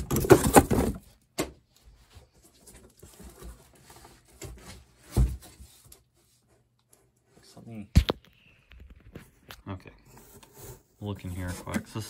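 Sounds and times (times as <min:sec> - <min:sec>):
cardboard scraping and rustling: 0:00.0 - 0:01.1, 0:02.2 - 0:06.6, 0:10.0 - 0:12.0.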